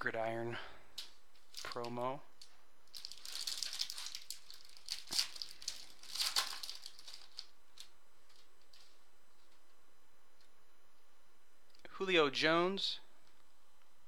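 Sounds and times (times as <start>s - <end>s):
foil wrapper crinkling: 1.0s - 9.7s.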